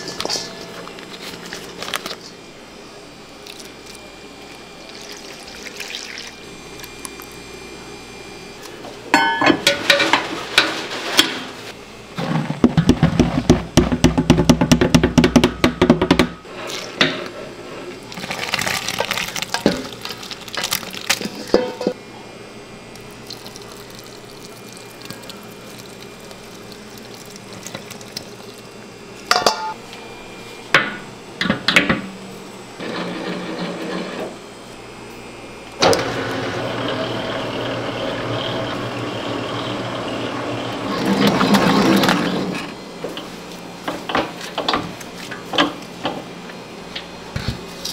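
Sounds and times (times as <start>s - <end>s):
utensils and dishes clinking: 0.0s - 2.4s, 9.1s - 11.5s, 18.2s - 22.0s, 29.3s - 29.8s
low machine hum: 0.0s - 47.9s.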